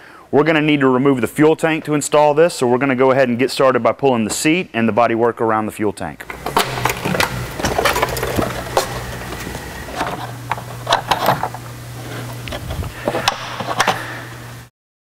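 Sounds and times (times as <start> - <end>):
steady low hum: 6.1 - 14.7
plastic panels clicking and knocking: 6.2 - 11.6.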